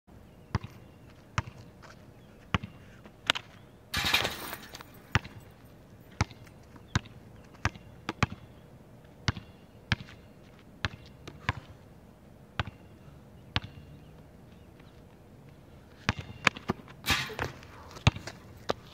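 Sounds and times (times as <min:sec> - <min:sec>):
basketball bouncing on court: 0:00.5 - 0:00.8, 0:01.4 - 0:01.6, 0:02.5 - 0:02.8, 0:05.1 - 0:05.4, 0:06.2 - 0:08.4, 0:09.3 - 0:10.2, 0:10.8 - 0:11.7, 0:12.6 - 0:12.8, 0:13.6 - 0:13.8, 0:16.1 - 0:18.4.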